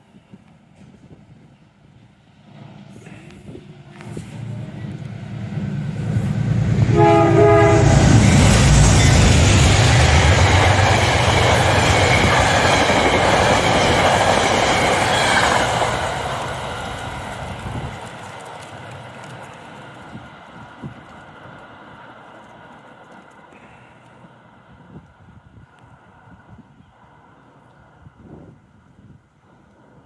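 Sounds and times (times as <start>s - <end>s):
train rumble: 0.0s - 30.0s
train wheels clickety-clack: 6.0s - 24.4s
train horn blast: 6.7s - 8.6s.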